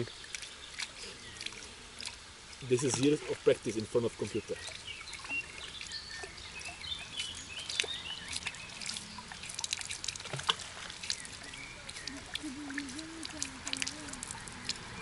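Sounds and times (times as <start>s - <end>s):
water splashing from swimming: 0.0s - 15.0s.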